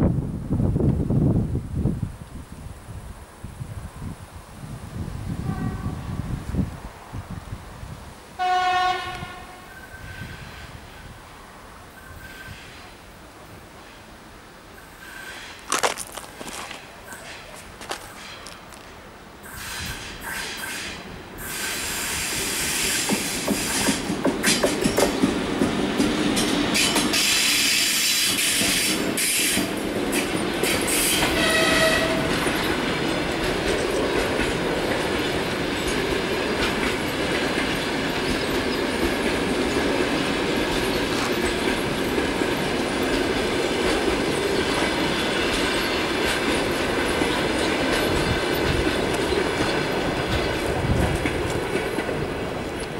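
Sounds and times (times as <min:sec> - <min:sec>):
train wheels clattering over rail joints: 0:15.2 - 0:52.9
hissing rush: 0:19.4 - 0:24.2.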